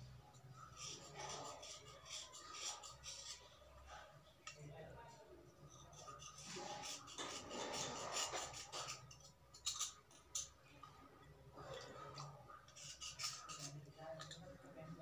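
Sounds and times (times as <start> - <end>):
knife scraping slate pencil: 0.6 - 3.5, 5.7 - 10.5, 12.7 - 13.8.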